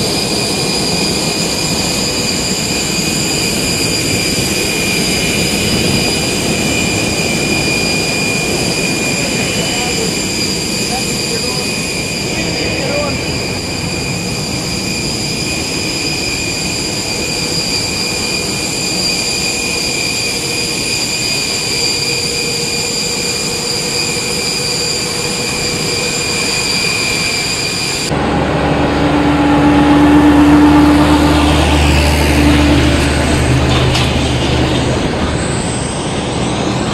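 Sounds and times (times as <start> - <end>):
constant rushing noise: 0.0 - 36.9
jet turbine whine: 0.0 - 36.9
vehicle engine hum: 28.1 - 36.9.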